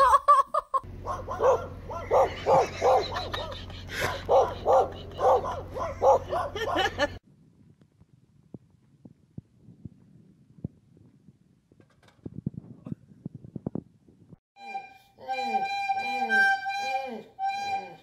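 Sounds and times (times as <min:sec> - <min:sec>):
small dog barking: 0:01.0 - 0:06.9.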